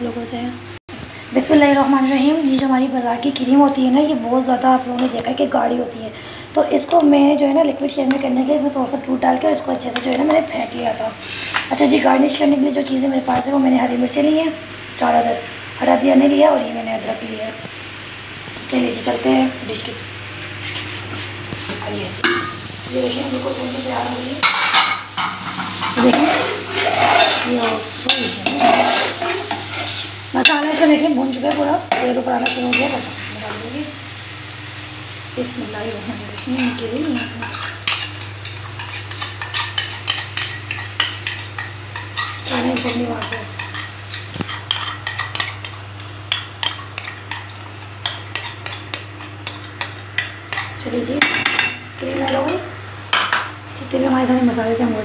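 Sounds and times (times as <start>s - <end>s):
hot oil sizzling: 0.9s - 55.0s
metal spoon scraping a pot: 24.4s - 30.2s, 36.4s - 50.8s.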